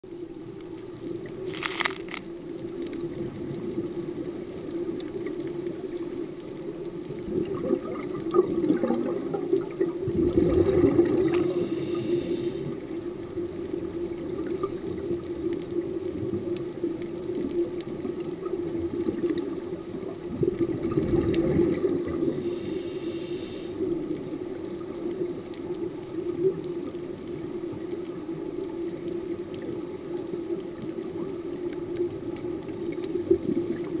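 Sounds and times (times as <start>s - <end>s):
exhaled bubbles rumbling underwater: 0.1s - 1.5s, 2.2s - 34.0s
regulator hissing: 11.4s - 12.8s.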